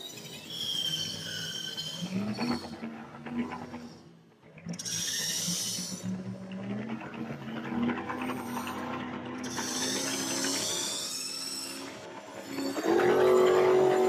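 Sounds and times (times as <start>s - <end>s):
toy electric motor whining: 9.4s - 14.0s.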